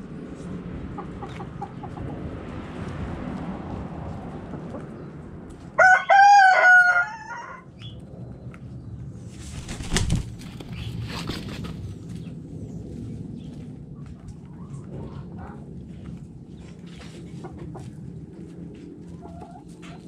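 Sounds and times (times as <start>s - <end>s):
hens clucking: 0.9s - 2.2s, 19.0s - 20.0s
rooster crowing: 5.8s - 7.7s
rustling: 9.4s - 11.9s.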